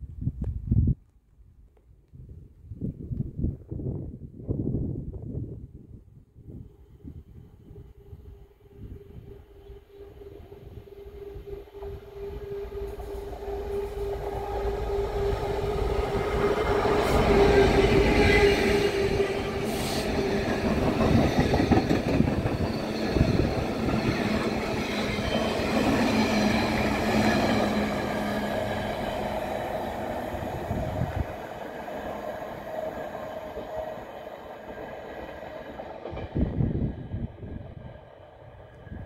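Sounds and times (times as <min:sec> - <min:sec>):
train wheels clattering on rails: 0:16.3 - 0:27.9.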